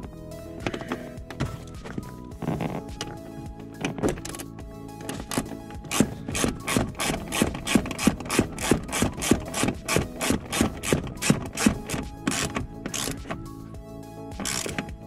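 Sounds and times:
ratchet wrench clicking: 0:05.1 - 0:13.4, 0:14.4 - 0:15.0.

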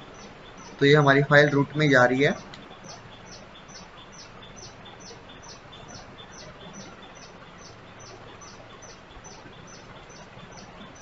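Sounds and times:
steady background hiss: 0:00.0 - 0:11.0.

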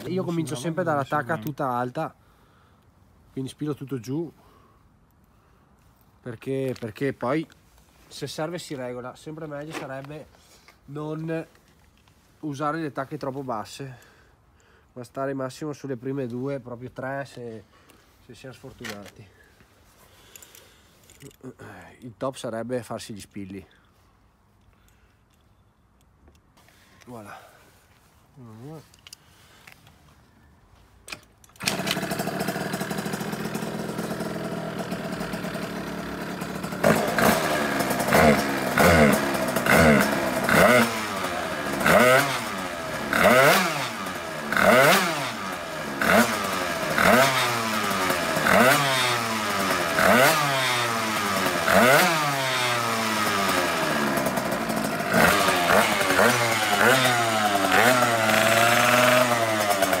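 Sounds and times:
scooter engine revving: 0:31.6 - 1:00.0.

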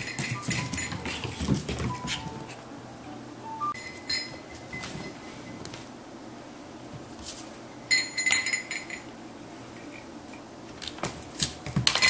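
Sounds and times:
toy jingling clink: 0:00.0 - 0:01.3, 0:03.8 - 0:04.8, 0:07.9 - 0:09.1
scuffing clicks: 0:00.0 - 0:02.6.

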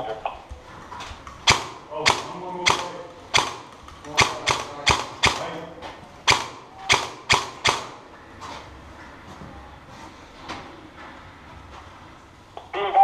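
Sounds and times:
airsoft gun shots: 0:01.4 - 0:05.7, 0:06.3 - 0:08.0.

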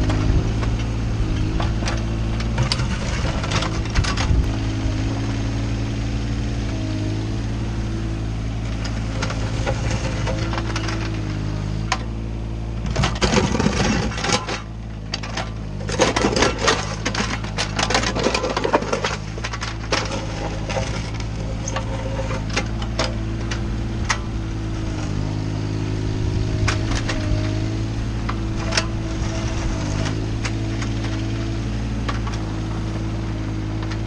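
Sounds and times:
excavator diesel engine running: 0:00.0 - 0:34.0
bucket scraping gravel: 0:01.6 - 0:05.2, 0:12.9 - 0:25.3, 0:26.2 - 0:33.2.

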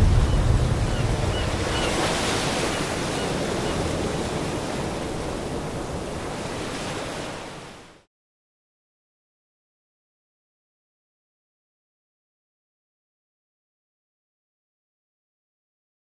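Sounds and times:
ocean waves and surf: 0:00.0 - 0:08.1.

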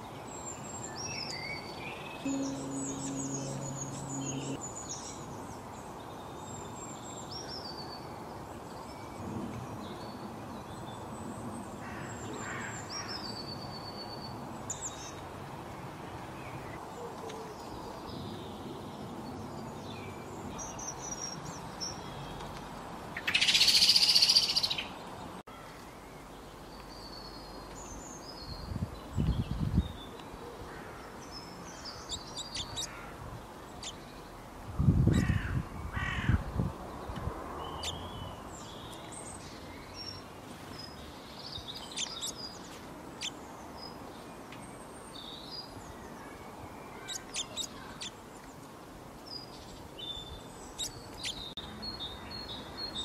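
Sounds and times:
outdoor background hiss: 0:00.0 - 0:53.0
songbirds chirping: 0:00.0 - 0:53.0
low steady hum: 0:02.3 - 0:04.6.

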